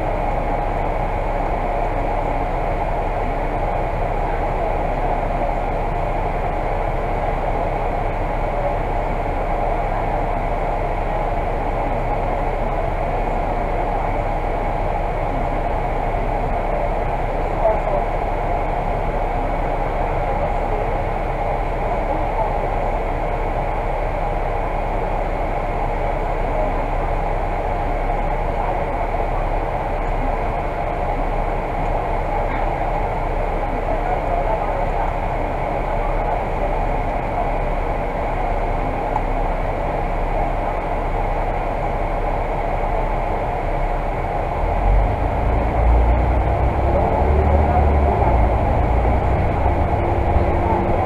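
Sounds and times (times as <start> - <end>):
bus engine idling: 0.0 - 51.0.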